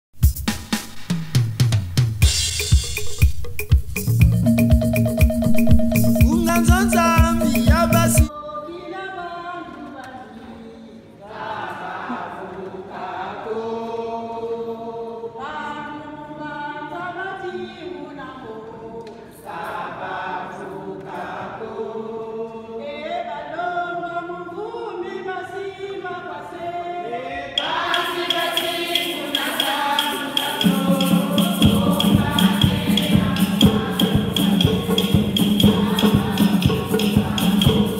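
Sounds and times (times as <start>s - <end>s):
rhythmic rattle: 2.2s - 8.3s, 27.6s - 37.9s
women's choir singing a hymn: 8.3s - 37.9s.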